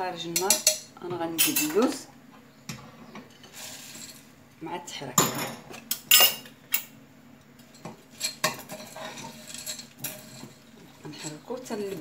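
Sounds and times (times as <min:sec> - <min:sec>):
utensil scraping a saucepan: 0:03.3 - 0:04.3, 0:08.1 - 0:12.0.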